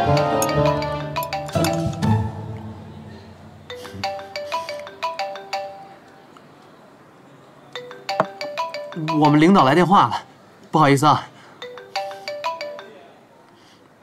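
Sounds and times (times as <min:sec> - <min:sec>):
phone ringtone melody: 0:00.0 - 0:02.1, 0:03.6 - 0:06.1, 0:07.8 - 0:09.8, 0:11.6 - 0:13.2.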